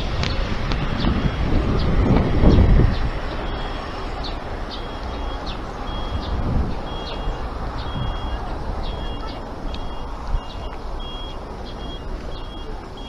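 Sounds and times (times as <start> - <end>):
street traffic: 0.0 - 13.0
vehicle passing loudly: 0.0 - 13.0
crossing signal high beeps: 3.3 - 13.0.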